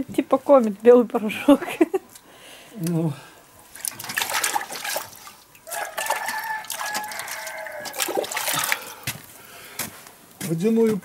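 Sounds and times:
hands splashing in bucket water: 3.7 - 9.2
rooster crowing: 5.6 - 9.0.

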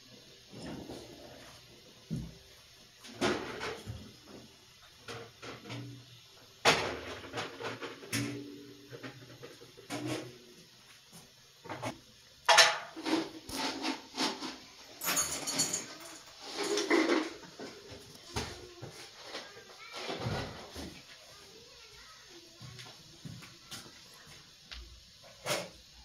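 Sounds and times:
kitchen things knocking and clattering: 3.0 - 10.4, 11.7 - 21.1.

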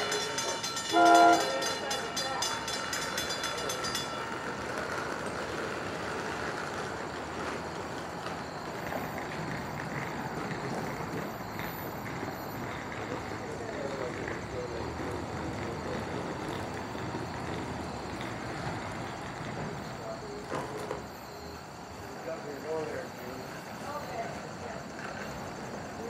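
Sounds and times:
crossing bell ringing: 0.0 - 26.0
train horn blast: 0.9 - 1.7.

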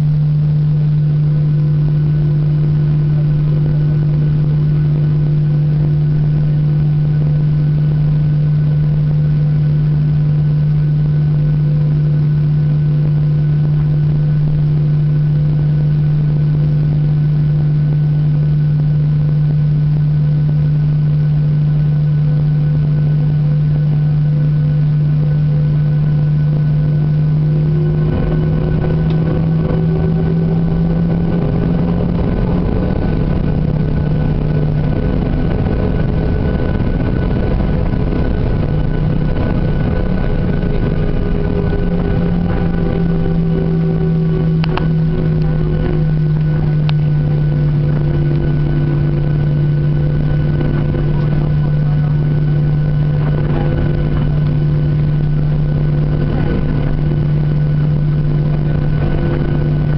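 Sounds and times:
aircraft cabin hum: 0.0 - 59.9
jet engine spooling up: 25.7 - 59.9.

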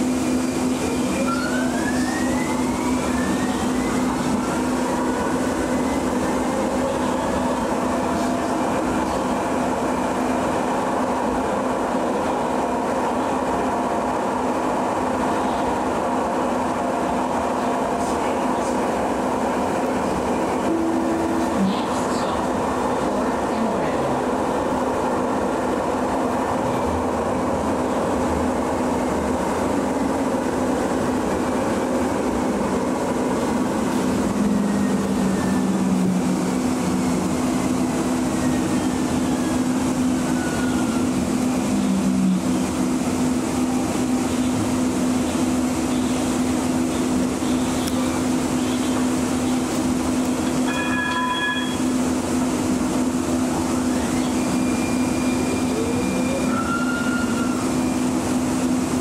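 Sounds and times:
train motor hum: 0.0 - 59.0
short ringing chime: 50.6 - 51.9.

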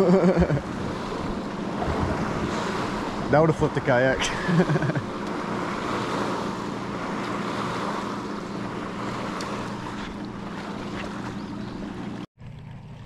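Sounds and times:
motorboat engine drone: 0.0 - 13.0
water rushing past hull: 0.0 - 13.0
wind on microphone: 0.5 - 4.4.

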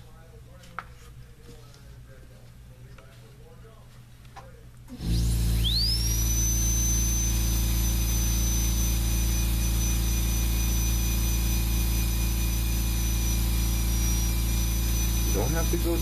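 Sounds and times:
rotary carving tool whining: 5.0 - 16.0.

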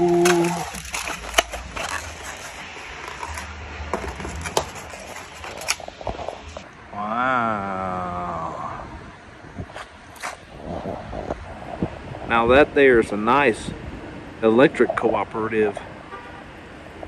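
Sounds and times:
paper rustling: 0.0 - 6.6
styrofoam box crinkling: 0.0 - 6.6.

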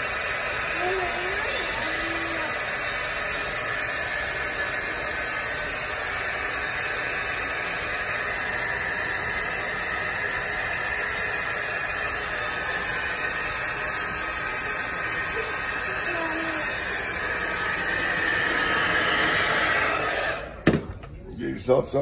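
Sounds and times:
hair dryer running: 0.0 - 21.1.

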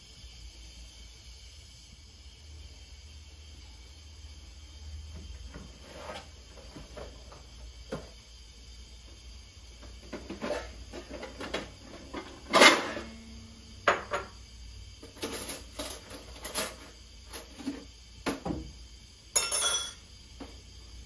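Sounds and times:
dishes knocking and clinking: 13.9 - 14.4, 19.4 - 20.0.

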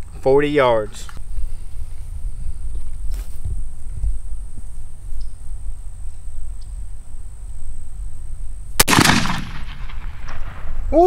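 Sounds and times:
shotgun shot with echo: 8.8 - 10.7.

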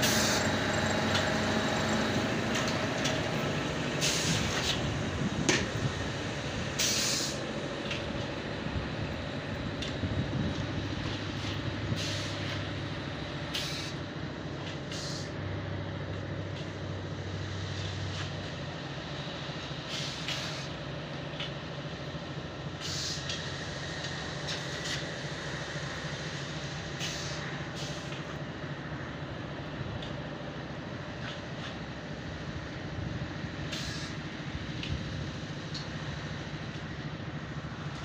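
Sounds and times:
low mechanical hum: 0.0 - 38.0
noisy hiss: 4.0 - 14.1, 14.8 - 15.6, 21.7 - 38.0.

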